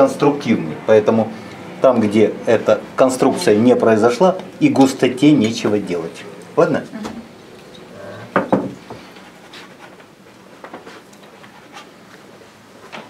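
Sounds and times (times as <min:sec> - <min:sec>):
sharp knocks: 0:08.3 - 0:09.0.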